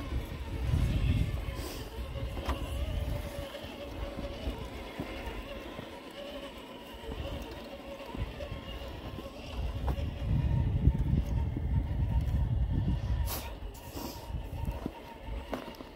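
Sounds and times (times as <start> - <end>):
electric motor and gearbox whining: 0.0 - 15.9.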